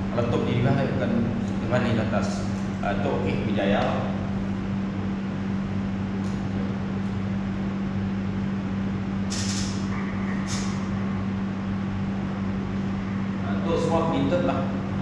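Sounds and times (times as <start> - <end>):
low electrical hum: 0.0 - 15.0
brief hissing noises: 9.3 - 9.9, 10.5 - 10.8.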